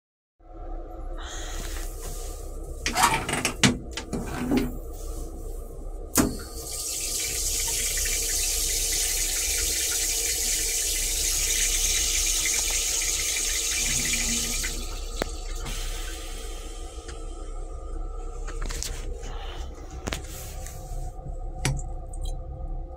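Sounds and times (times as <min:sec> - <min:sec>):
toilet flush hissing: 0:06.1 - 0:19.0.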